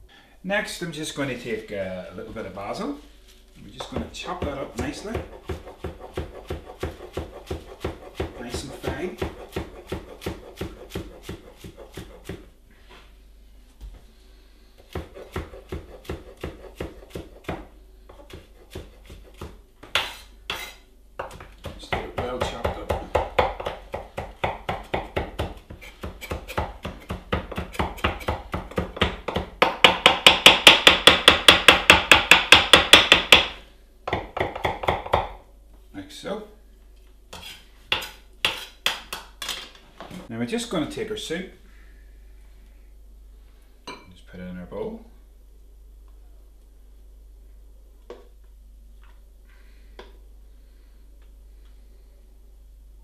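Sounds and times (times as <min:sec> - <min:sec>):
knife chopping on wooden board: 0:03.8 - 0:12.4, 0:14.9 - 0:35.4.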